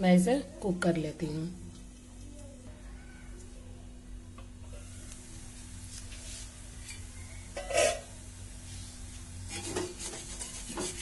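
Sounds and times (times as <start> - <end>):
metal lid clank: 7.6 - 8.1.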